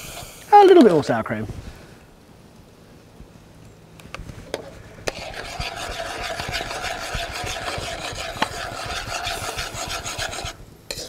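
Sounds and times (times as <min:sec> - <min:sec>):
metal spatula scraping a pan: 0:05.1 - 0:11.0.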